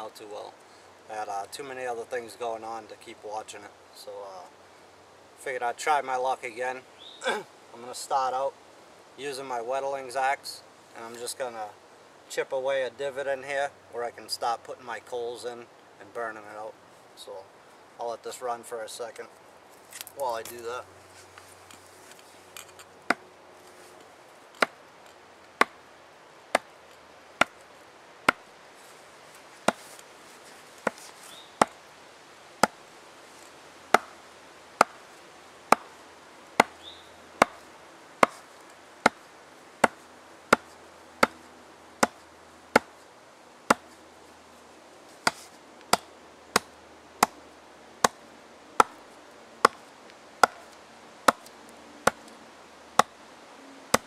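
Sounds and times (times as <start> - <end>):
axe chopping into log: 29.7 - 29.9, 34.0 - 34.2, 37.4 - 37.6, 38.2 - 38.4, 42.8 - 43.0, 45.2 - 47.4, 50.4 - 50.7.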